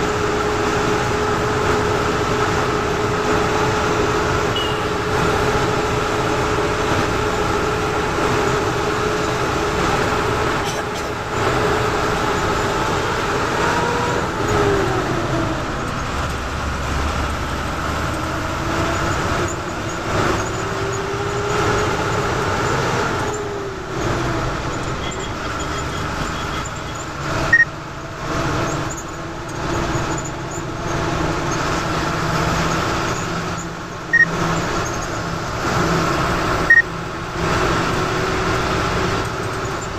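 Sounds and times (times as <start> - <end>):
bus engine whining: 0.0 - 39.9
road noise: 0.0 - 39.9.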